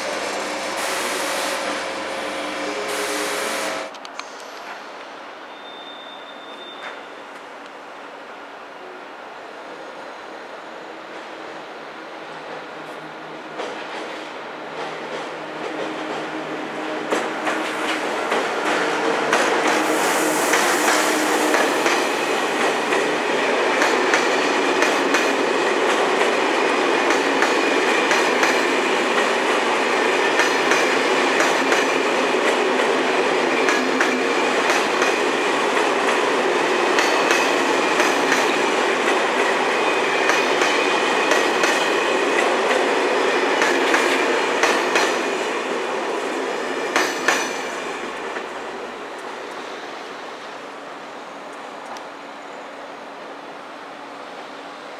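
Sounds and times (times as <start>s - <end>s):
train wheels rushing on rails: 0.0s - 8.6s, 9.2s - 54.9s
clickety-clack over rail joints: 12.5s - 19.9s, 20.5s - 45.5s, 46.8s - 49.6s.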